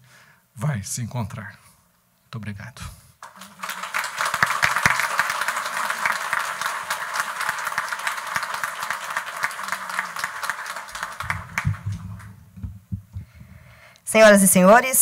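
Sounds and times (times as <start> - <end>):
audience applauding: 3.2 - 12.5.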